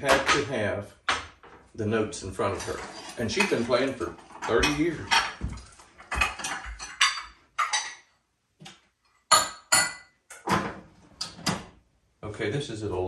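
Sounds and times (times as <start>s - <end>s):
pots and utensils clattering: 2.4s - 8.1s.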